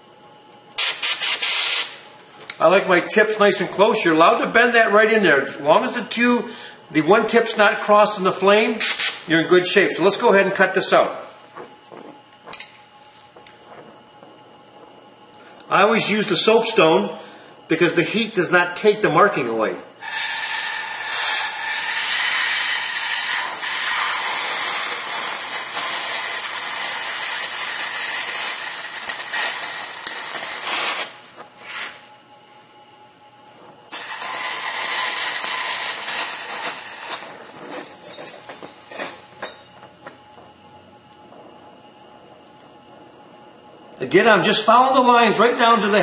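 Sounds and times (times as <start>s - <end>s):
cutting torch hissing: 0.8s - 2.1s, 8.7s - 9.3s, 20.0s - 32.1s, 33.9s - 39.6s, 44.4s - 46.0s.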